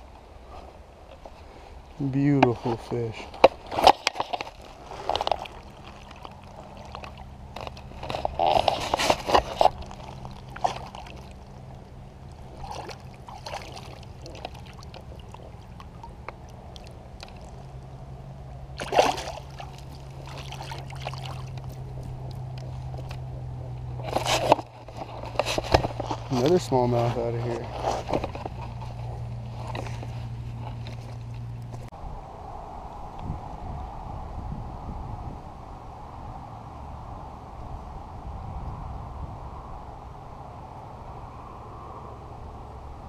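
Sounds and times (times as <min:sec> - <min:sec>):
steady low hum: 0:00.0 - 0:43.0
water splashing and trickling: 0:02.1 - 0:31.9.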